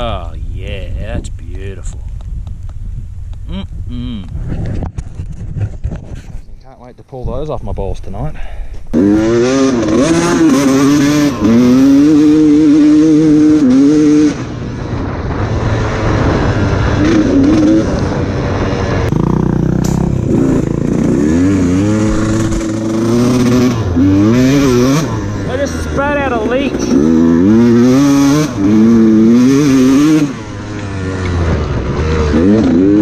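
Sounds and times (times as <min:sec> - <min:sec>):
dirt bike engine revving: 0:08.9 - 0:33.0.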